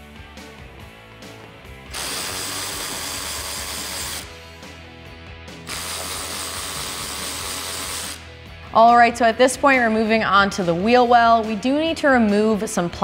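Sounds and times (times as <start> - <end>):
cordless drill running: 1.9 - 4.4, 5.6 - 8.2.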